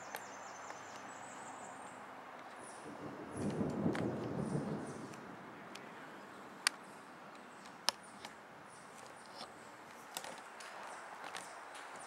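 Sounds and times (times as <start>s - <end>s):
sharp isolated clicks: 3.4s - 4.4s, 6.6s - 8.4s.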